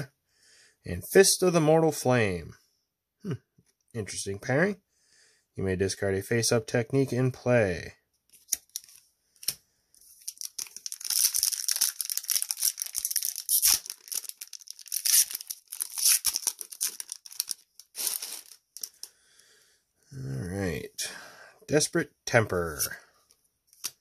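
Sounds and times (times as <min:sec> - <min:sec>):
wrapper tearing and crinkling: 0:10.2 - 0:19.1.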